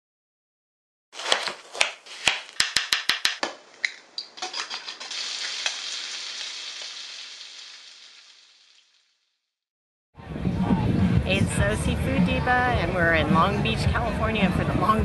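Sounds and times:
bacon sizzling in frying pan: 0:04.5 - 0:09.2.

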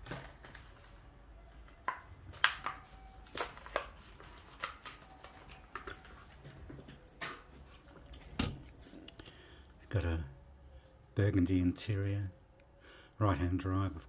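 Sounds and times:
plastic blister pack crackling: 0:02.3 - 0:06.4.

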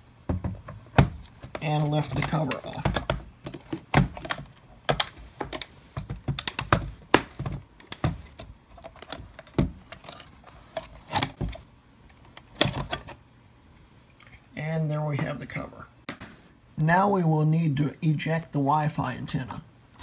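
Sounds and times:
clicks and knocks of computer case: 0:00.3 - 0:08.5.

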